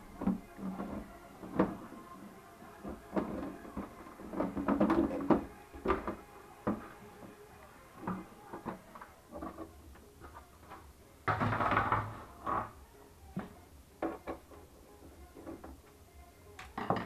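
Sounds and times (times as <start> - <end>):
plastic panel scraping: 2.8 - 7.3.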